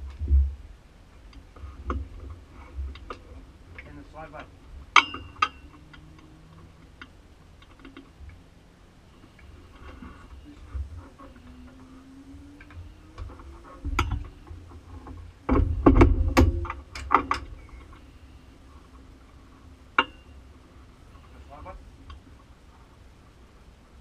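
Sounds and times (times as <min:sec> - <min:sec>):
sharp clicks and knocks of gear: 0:01.2 - 0:08.4, 0:12.6 - 0:18.1.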